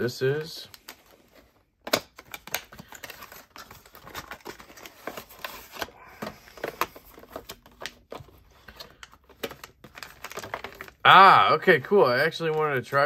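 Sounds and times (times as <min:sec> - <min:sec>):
packaging clicks and taps: 0:01.8 - 0:11.0.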